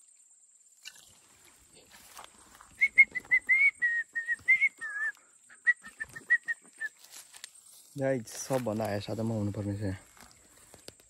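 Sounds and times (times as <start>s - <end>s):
short whistled notes: 2.7s - 7.0s.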